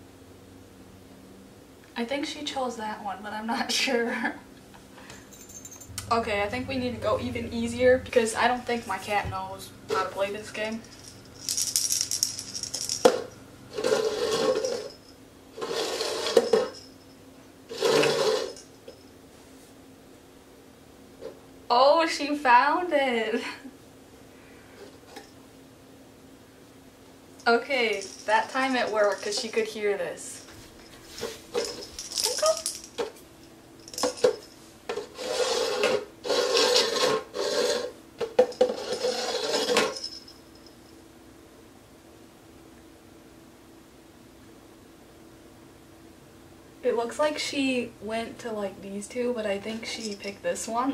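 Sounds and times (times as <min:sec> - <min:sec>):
rattle toy jingling: 0:10.6 - 0:13.3, 0:27.8 - 0:29.7, 0:31.6 - 0:33.0
plastic cups sliding on tile: 0:13.8 - 0:14.9, 0:15.6 - 0:16.7, 0:17.7 - 0:18.6, 0:34.9 - 0:40.0.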